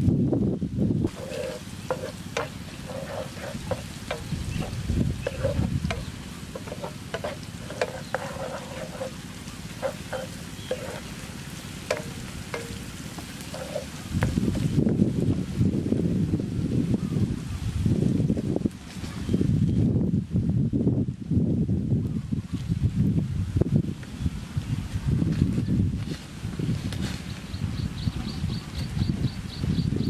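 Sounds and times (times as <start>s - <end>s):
spatula scraping frying pan: 1.1s - 14.8s
chilli and garlic sizzling in oil: 1.1s - 14.9s.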